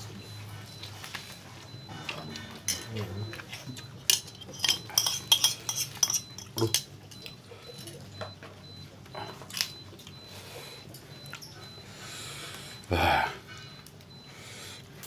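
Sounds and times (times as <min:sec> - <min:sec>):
plates and spoon clinking: 0:02.6 - 0:08.4.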